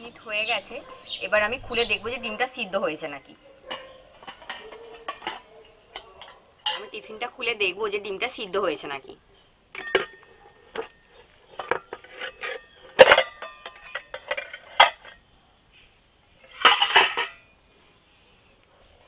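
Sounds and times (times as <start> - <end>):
tongs clinking on metal lid: 3.0 - 7.3, 9.8 - 11.0, 11.6 - 15.2
metal clatter: 11.6 - 15.2, 16.5 - 17.4.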